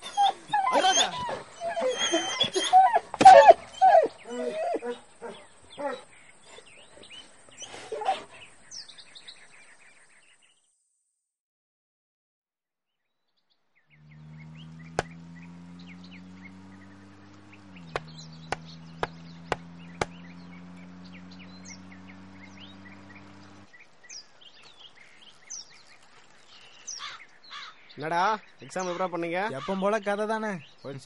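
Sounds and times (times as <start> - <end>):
birds chirping: 0.0 - 10.7, 13.4 - 31.0
bat knocking wooden stump: 17.9 - 20.2.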